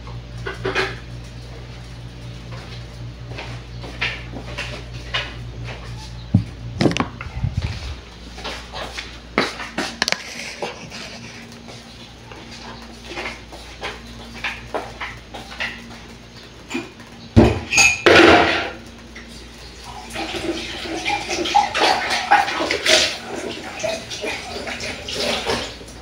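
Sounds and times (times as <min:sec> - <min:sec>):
dishes clinking at a sink: 0:00.4 - 0:01.1.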